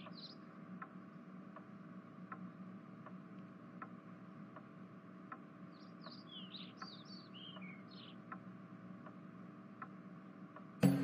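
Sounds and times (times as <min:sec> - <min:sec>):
small bird chirps: 0:00.0 - 0:01.2, 0:05.6 - 0:08.4
clock ticking: 0:00.0 - 0:03.2, 0:03.8 - 0:11.0
low steady hum: 0:00.0 - 0:11.0.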